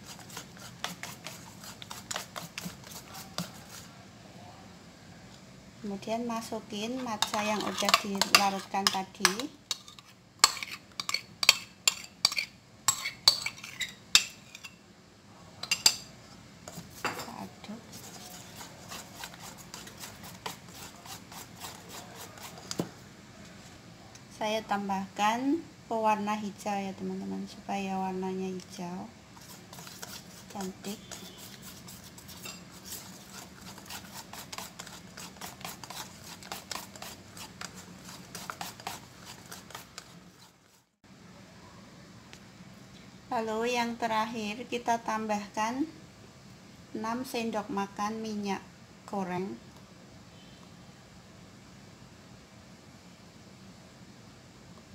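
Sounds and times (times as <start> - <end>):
whisk clicking against metal bowl: 7.2 - 13.4, 29.7 - 40.1.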